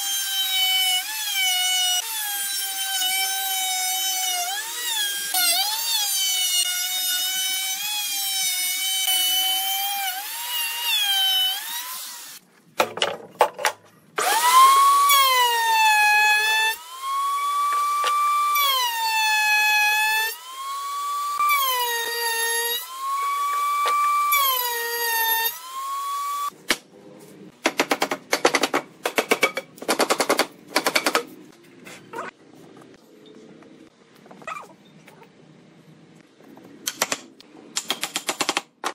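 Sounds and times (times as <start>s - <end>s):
power tool whining into wood: 14.2s - 26.5s.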